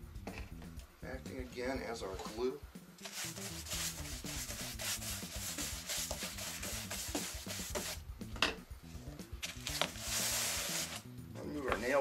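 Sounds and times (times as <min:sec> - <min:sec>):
paintbrush scrubbing on foam board: 0:03.0 - 0:08.0, 0:09.6 - 0:11.0.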